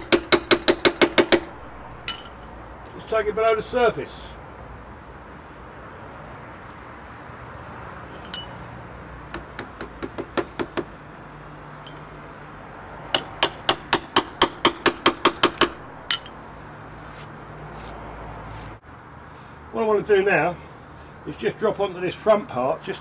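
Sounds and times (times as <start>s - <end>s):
hammer tapping metal nail: 0.0s - 1.5s, 13.2s - 16.3s.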